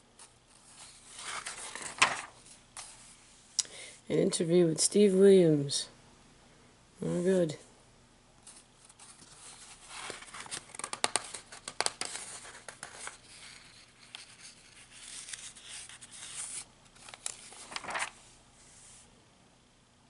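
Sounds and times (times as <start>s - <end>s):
magazine pages rustling: 0.6s - 3.1s, 8.4s - 18.3s.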